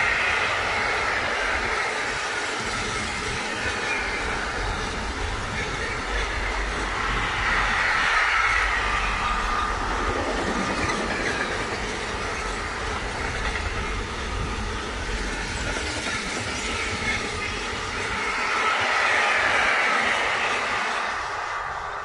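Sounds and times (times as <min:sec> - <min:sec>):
freight train wheels on rails: 0:00.0 - 0:22.0.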